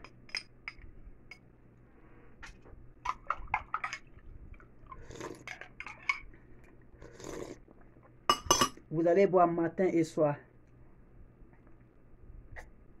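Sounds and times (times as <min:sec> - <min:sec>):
spoon clinking against glass: 0:08.3 - 0:08.8.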